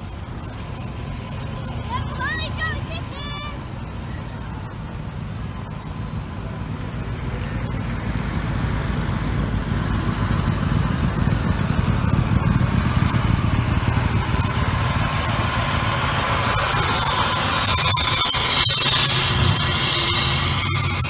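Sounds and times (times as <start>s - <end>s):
fire engine passing: 0.0s - 21.0s
low engine rumble: 0.0s - 21.0s
high whine: 8.7s - 21.0s.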